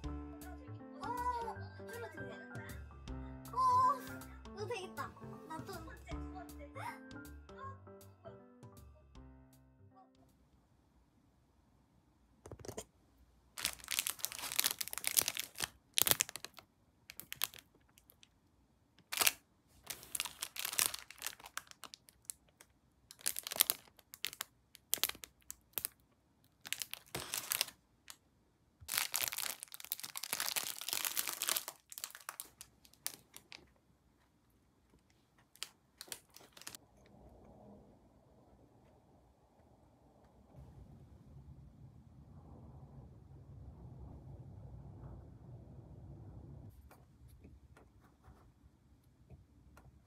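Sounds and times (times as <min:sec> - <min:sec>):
plastic wrapper crinkling: 0:13.6 - 0:18.4, 0:19.0 - 0:28.2, 0:28.8 - 0:33.8, 0:35.0 - 0:36.8.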